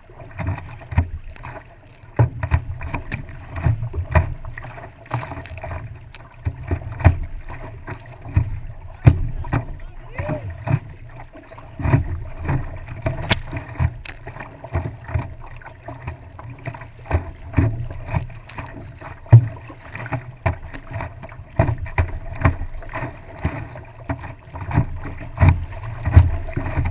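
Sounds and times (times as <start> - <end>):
water splashing against paddleboard: 0.0 - 26.9.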